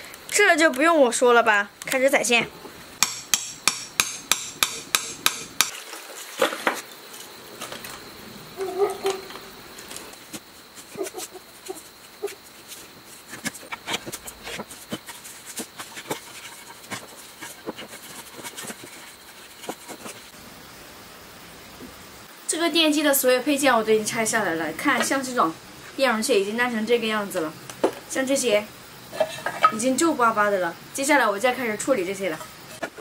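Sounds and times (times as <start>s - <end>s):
hammer striking chisel on metal: 3.0s - 5.7s
wire clinking and tapping: 3.0s - 5.8s.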